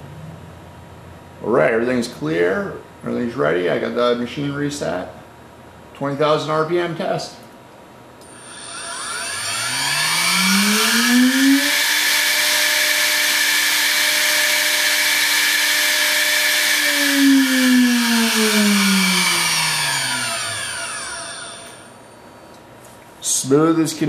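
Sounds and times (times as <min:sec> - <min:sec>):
router spindle high whine: 0:08.2 - 0:22.6.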